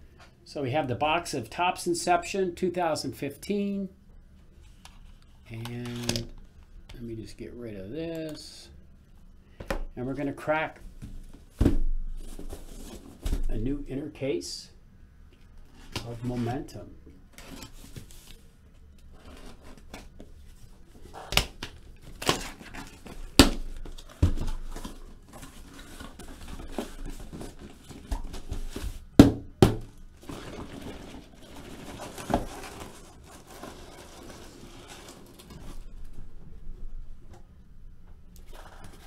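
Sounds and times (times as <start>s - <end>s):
boxes knocking and thudding: 11.1s - 13.6s, 23.3s - 25.5s, 26.3s - 33.0s
cardboard rustling and tearing: 21.0s - 29.1s, 30.2s - 36.0s.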